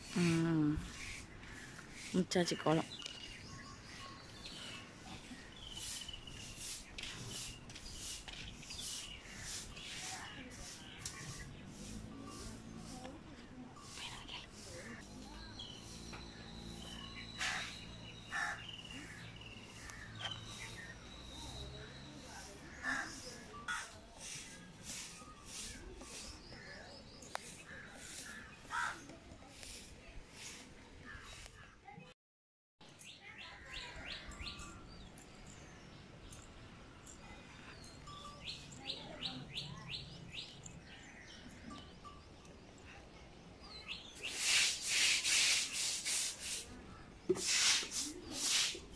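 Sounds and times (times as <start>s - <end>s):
small birds chirping: 0.0s - 32.1s, 32.8s - 48.9s.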